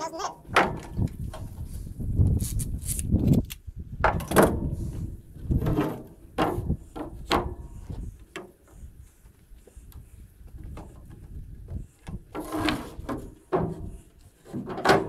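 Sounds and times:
wind buffeting microphone: 0:00.4 - 0:12.4.

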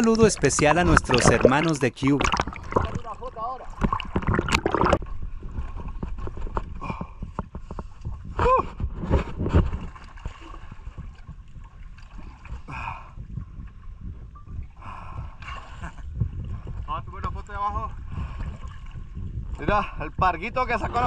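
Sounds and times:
sea water sloshing and splashing: 0:00.0 - 0:06.8, 0:08.8 - 0:15.8, 0:16.5 - 0:20.0.

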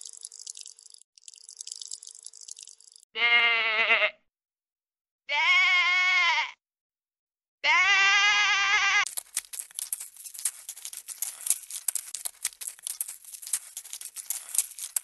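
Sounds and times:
sheep bleating: 0:03.2 - 0:04.2, 0:05.3 - 0:06.6, 0:07.6 - 0:09.1
dense clicking crackle: 0:09.1 - 0:15.0.

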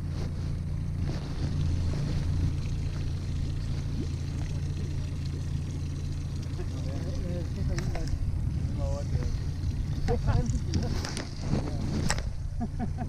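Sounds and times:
outboard motor humming: 0:00.0 - 0:13.0
water noise: 0:00.0 - 0:13.0
wind noise: 0:07.4 - 0:12.7.

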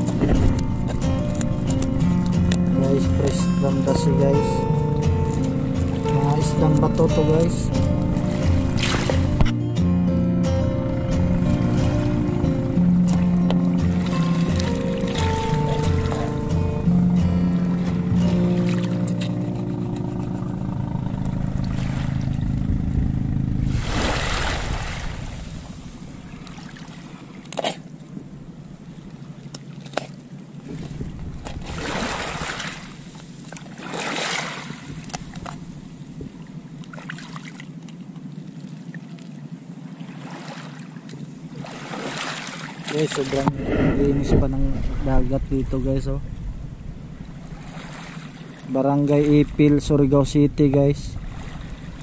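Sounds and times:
background music: 0:00.0 - 0:21.7
waves washing over pebbles: 0:23.7 - 0:27.4, 0:30.7 - 0:35.0, 0:41.6 - 0:46.0.

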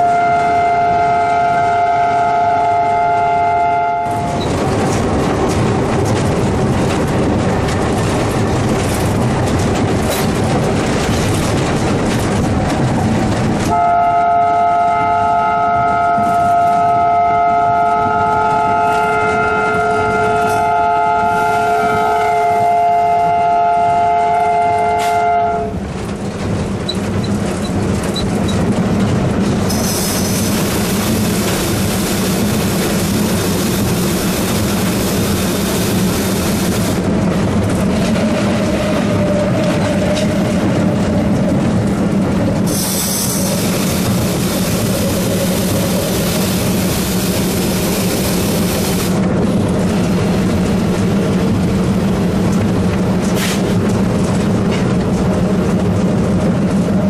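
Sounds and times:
locomotive horn: 0:00.0 - 0:04.5, 0:13.7 - 0:25.8
air brake hissing: 0:29.7 - 0:30.6, 0:42.7 - 0:44.7, 0:53.4 - 0:53.7.

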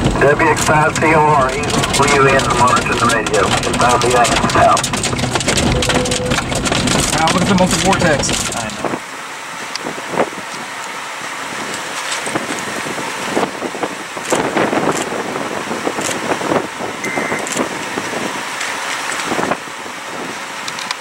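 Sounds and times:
sharp ticks and pops: 0:01.5 - 0:08.8
gusty wind on microphone: 0:08.1 - 0:10.7, 0:11.4 - 0:20.7.

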